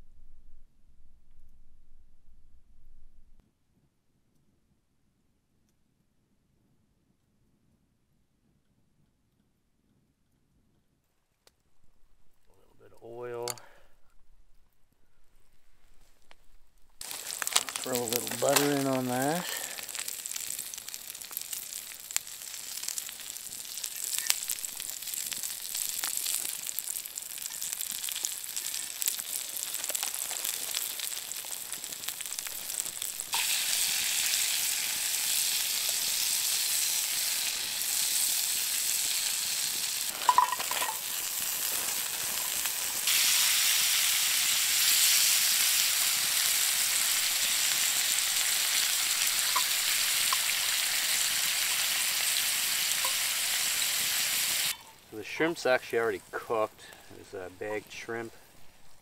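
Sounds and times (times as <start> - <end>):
asparagus sizzling in a pan: 17.0 - 58.1.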